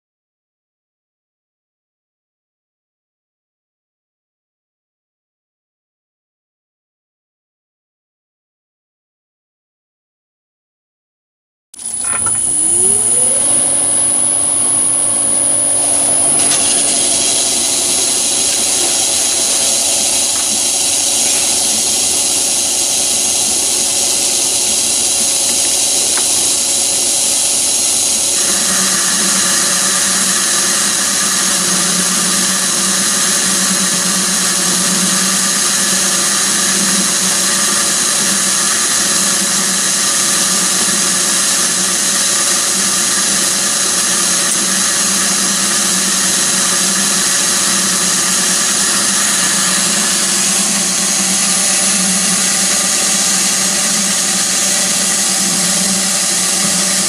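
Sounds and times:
lathe motor whining: 11.8 - 57.0
small geared motor buzzing hum: 11.8 - 57.0.

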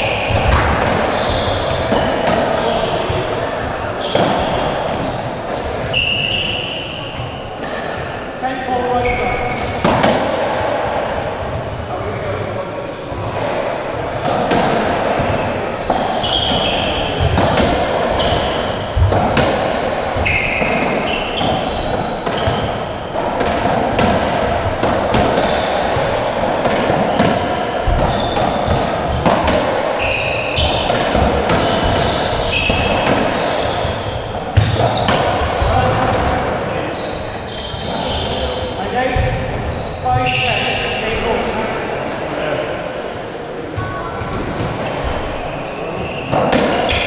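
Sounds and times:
shoes squeaking on wooden floor: 0.0 - 3.3, 5.9 - 7.9, 9.0 - 9.7, 15.3 - 17.4, 18.1 - 23.0, 27.8 - 29.4, 30.0 - 35.9, 36.8 - 40.9.

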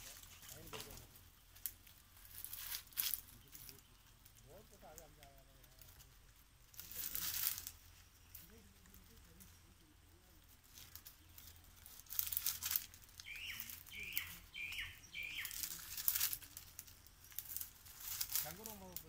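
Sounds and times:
rustling and scraping on palm trunk: 0.0 - 19.0
bird chirps: 7.6 - 10.0, 10.8 - 17.8.

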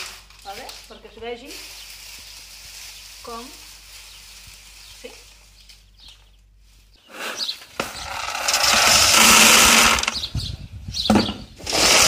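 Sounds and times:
seeds rattling onto wire sieve: 7.8 - 10.2.

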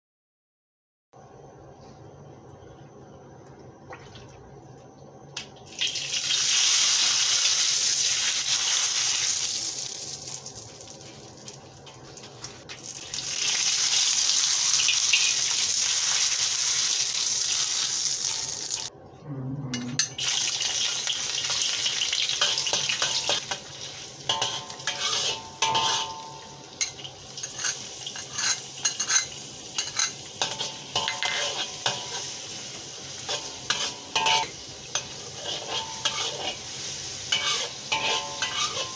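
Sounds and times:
hot oil sizzling in a wok: 5.7 - 18.9, 20.2 - 38.9
metal ladle scraping a wok: 22.3 - 32.5, 33.2 - 38.9.

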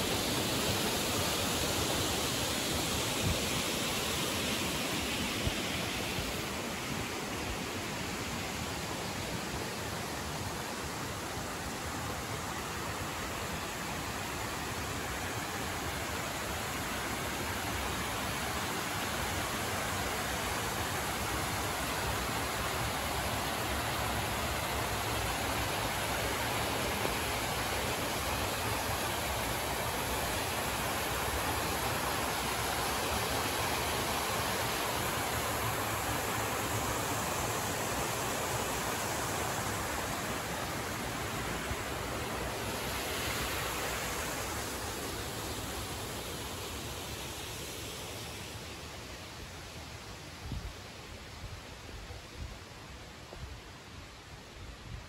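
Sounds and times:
mountain stream rushing: 0.0 - 55.0.

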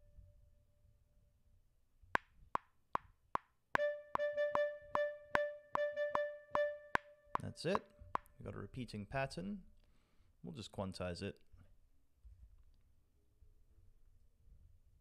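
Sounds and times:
metronome clicks: 2.2 - 8.3
clarinet repeating a note: 3.8 - 7.8.

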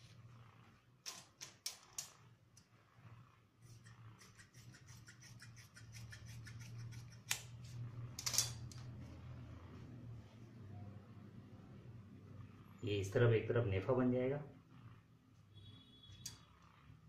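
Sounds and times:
shears snipping cloth: 3.6 - 7.7.

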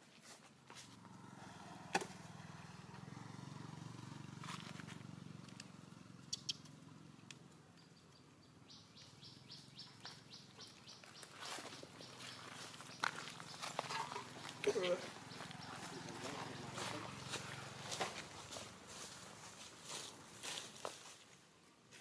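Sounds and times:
high chirping: 6.2 - 6.8, 7.7 - 18.0.

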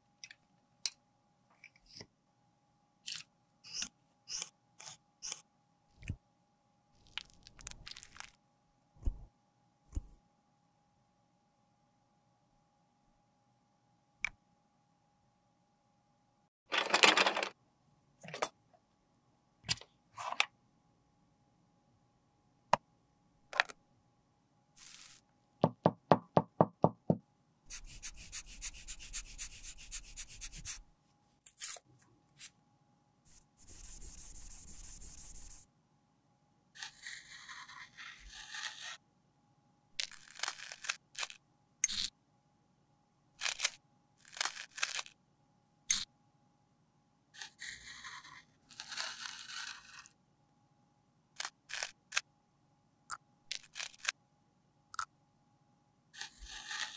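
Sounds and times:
scraping on pressed powder: 27.7 - 32.5, 33.3 - 35.6, 36.8 - 39.0, 47.4 - 50.2, 56.2 - 56.9.

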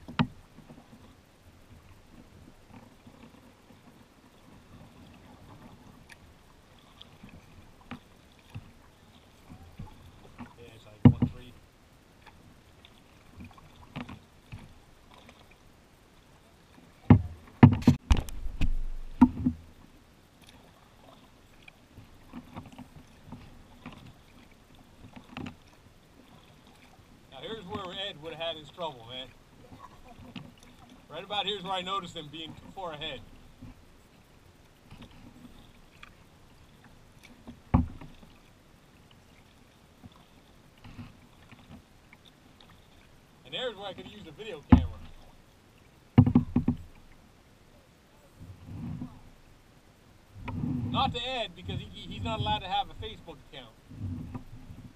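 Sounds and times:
knocks and thumps against boat: 0.0 - 1.1, 9.4 - 11.6, 13.3 - 15.4, 17.0 - 19.8, 22.0 - 24.2, 25.0 - 26.9, 37.2 - 38.4, 43.9 - 45.4, 46.1 - 47.2, 50.4 - 53.2, 53.9 - 54.9
paddle strokes and drips: 0.0 - 54.9.

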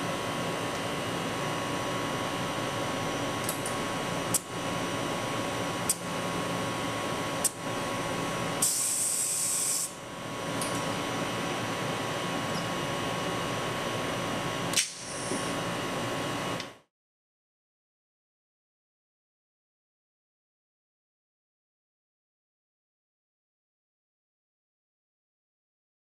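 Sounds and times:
machine hum: 9.9 - 16.7.

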